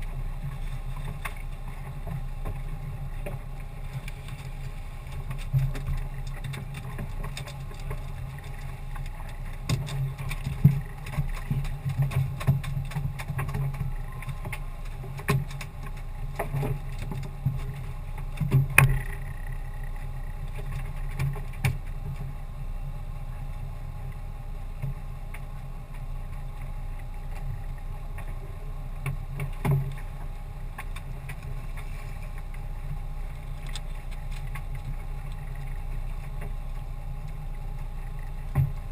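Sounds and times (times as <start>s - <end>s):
knocks and thumps on boat: 0.0s - 22.3s, 38.2s - 38.9s
boat engine humming: 0.0s - 38.9s.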